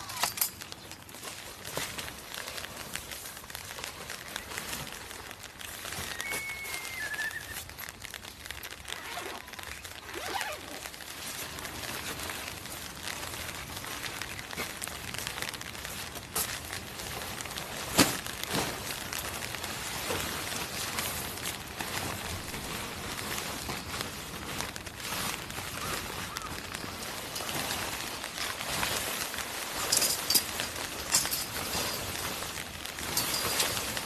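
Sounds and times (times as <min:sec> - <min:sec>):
canvas fabric rustling: 0:00.0 - 0:34.0
light rain hiss: 0:00.0 - 0:34.0.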